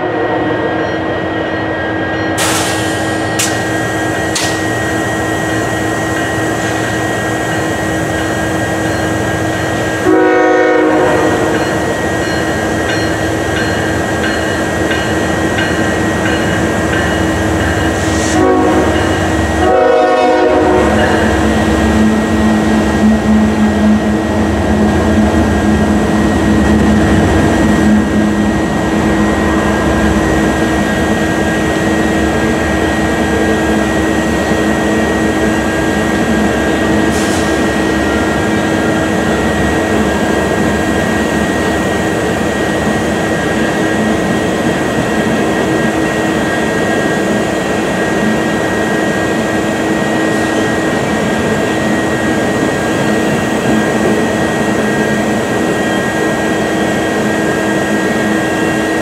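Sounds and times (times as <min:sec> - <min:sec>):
freight train rumbling past: 0:00.0 - 0:59.0
train air horn blasts: 0:10.0 - 0:11.5, 0:18.0 - 0:21.4.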